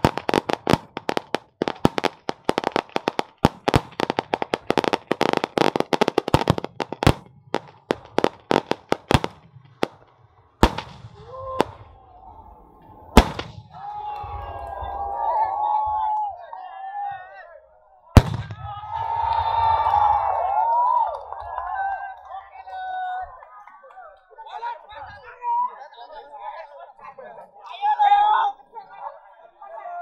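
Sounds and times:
firecrackers crackling and banging: 0:00.0 - 0:11.9, 0:13.1 - 0:14.8, 0:18.2 - 0:21.2.

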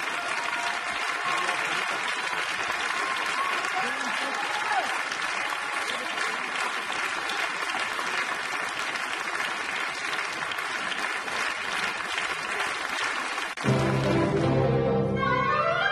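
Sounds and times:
audience applauding: 0:00.0 - 0:14.8
music: 0:13.6 - 0:15.9.

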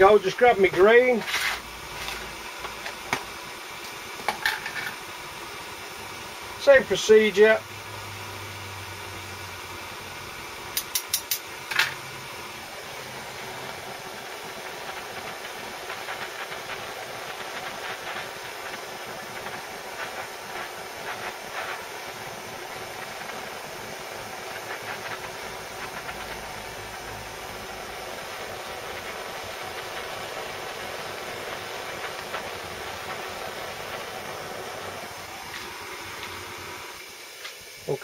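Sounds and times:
blowtorch flame hissing: 0:00.0 - 0:38.0
sharp metal taps: 0:10.8 - 0:11.4.

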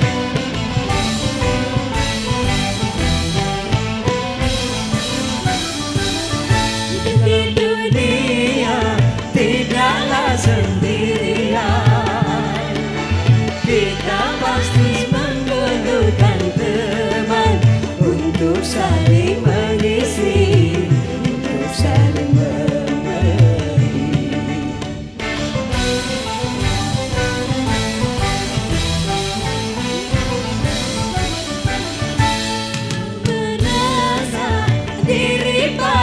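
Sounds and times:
electric guitar: 0:00.0 - 0:36.0
hand-drum beat: 0:00.0 - 0:36.0
live band music: 0:00.0 - 0:36.0.

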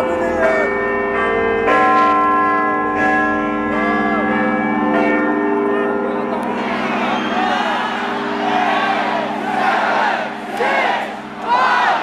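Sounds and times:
deep clock bells striking: 0:00.0 - 0:12.0
crowd whooping and cheering: 0:06.5 - 0:12.0.

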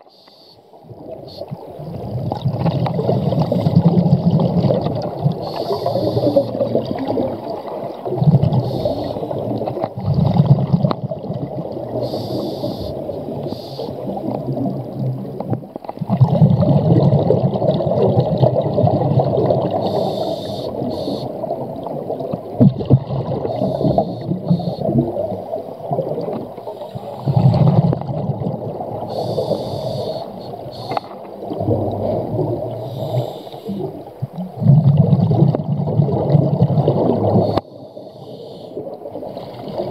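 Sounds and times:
regulator hissing inhalations: 0:00.1 - 0:00.7, 0:05.4 - 0:06.6, 0:08.6 - 0:09.5, 0:12.0 - 0:14.1, 0:19.8 - 0:21.4, 0:23.5 - 0:24.9, 0:26.7 - 0:27.4, 0:29.1 - 0:31.2, 0:32.8 - 0:34.0, 0:37.4 - 0:39.8
bubbling exhalations: 0:01.5 - 0:13.3, 0:16.0 - 0:21.8, 0:22.5 - 0:37.6.

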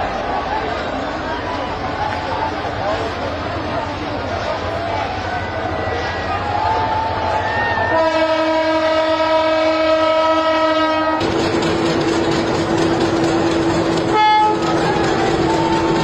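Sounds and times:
train running noise: 0:00.0 - 0:16.0
locomotive horn blast: 0:07.9 - 0:11.2, 0:14.0 - 0:16.0.

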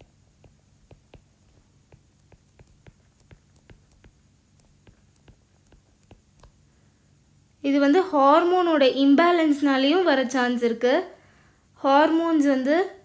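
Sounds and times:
stylus tapping on tablet screen: 0:00.0 - 0:06.7.

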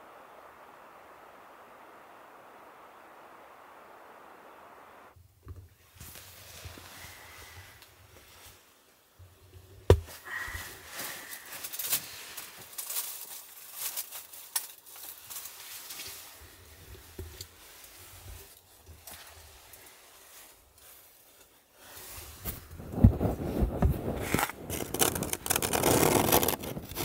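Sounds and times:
fabric rustling: 0:09.8 - 0:26.6.

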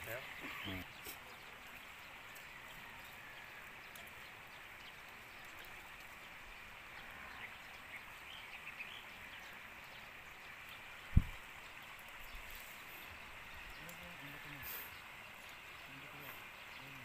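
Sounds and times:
steady high hiss: 0:05.2 - 0:17.0.

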